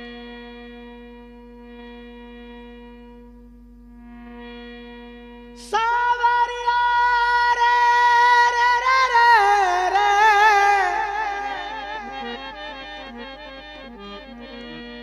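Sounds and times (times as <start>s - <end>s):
keyboard accompaniment: 0.0s - 15.0s
man singing devotional song: 5.6s - 13.9s.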